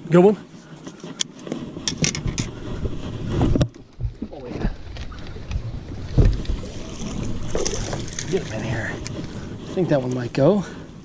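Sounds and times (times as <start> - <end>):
wind buffeting microphone: 0.8 - 11.0
heavy low thump: 3.3 - 6.6.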